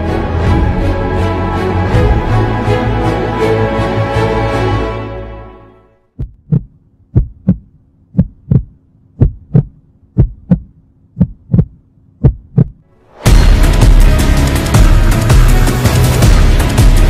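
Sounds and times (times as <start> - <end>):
music: 0.0 - 6.1, 12.9 - 17.0
faint steady hum: 6.0 - 13.0
heartbeat thumps: 6.2 - 13.6.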